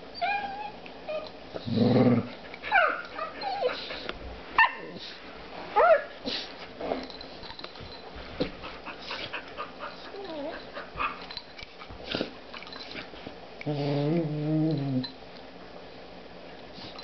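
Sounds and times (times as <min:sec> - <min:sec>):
puppy whining: 0:00.1 - 0:01.4, 0:02.2 - 0:05.0, 0:09.8 - 0:11.3, 0:13.6 - 0:15.2
dog play growl: 0:01.5 - 0:02.5, 0:13.6 - 0:15.2.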